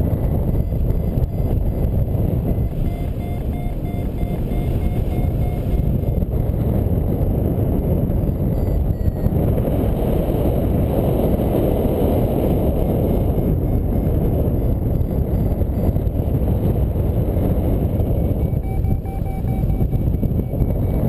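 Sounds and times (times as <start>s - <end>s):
variometer short beeps: 0.0s - 6.4s, 8.1s - 9.4s, 13.5s - 16.2s, 18.0s - 21.0s
wind rushing over microphone: 0.0s - 21.0s.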